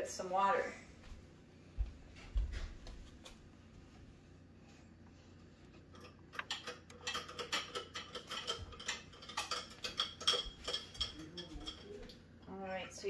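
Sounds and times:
dishes clinking in a sink: 6.0s - 12.2s.

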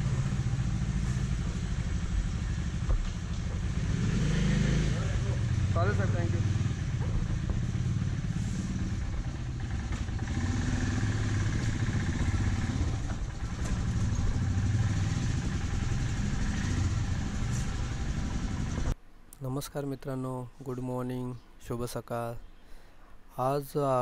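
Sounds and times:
motorcycle engine idling: 0.0s - 19.0s.

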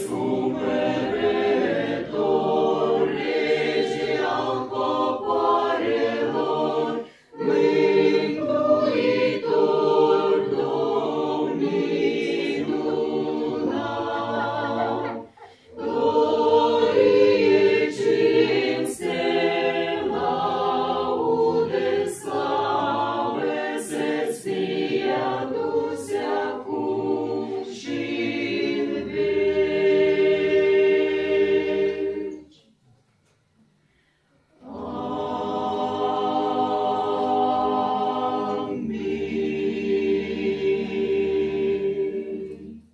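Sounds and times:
mixed choir singing a hymn: 0.0s - 32.5s, 34.6s - 42.9s.

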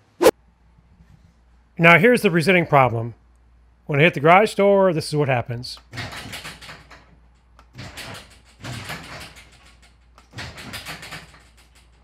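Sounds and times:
garage door opener running: 5.8s - 12.0s
garage door rattling and clunking: 5.8s - 12.0s.

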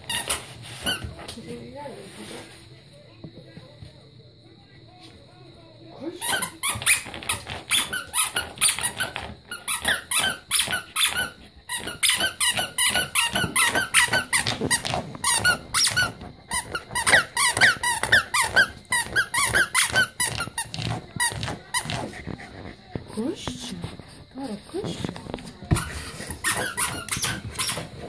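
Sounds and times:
dog paws scraping rug: 0.0s - 3.9s, 6.2s - 28.0s
squeaky toy squeaking: 6.2s - 21.9s, 26.4s - 28.0s.

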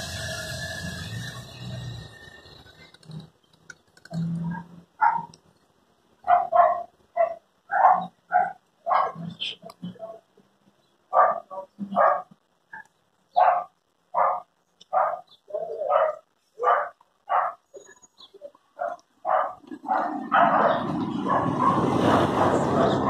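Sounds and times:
dog barking: 4.4s - 5.3s, 6.2s - 9.4s, 11.1s - 17.6s, 18.8s - 23.0s
loud rushing noise: 20.3s - 23.0s.

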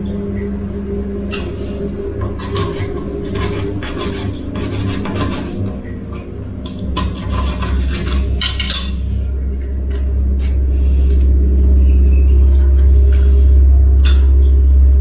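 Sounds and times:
knife scraping and slicing fish: 2.2s - 9.1s.

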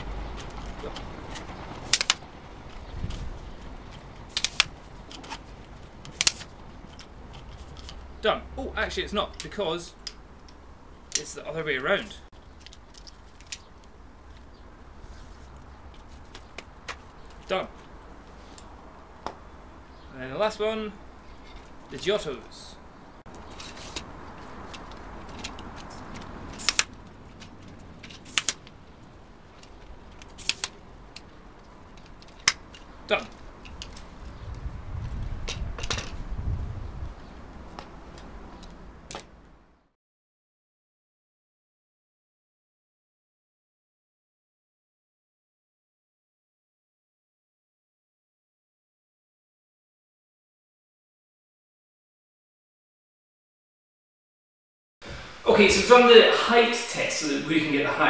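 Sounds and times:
tripod legs clacking shut: 0.0s - 2.2s, 3.9s - 8.0s, 24.7s - 28.8s, 29.6s - 31.3s, 37.7s - 39.4s.

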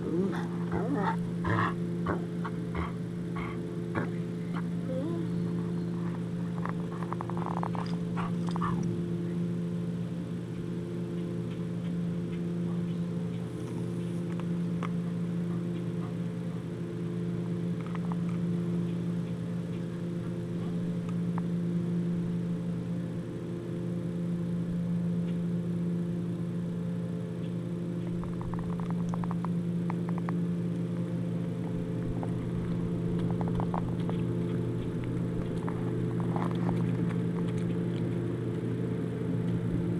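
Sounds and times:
pulsing low machine hum: 0.0s - 39.9s
dog chewing and tearing meat: 6.0s - 8.9s, 31.8s - 38.7s.

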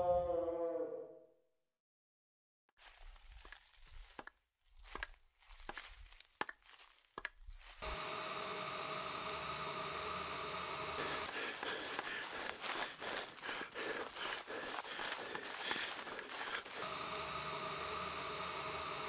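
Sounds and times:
footsteps crunching dry leaves: 2.8s - 8.0s, 11.0s - 16.9s
harsh static noise: 7.8s - 19.0s.

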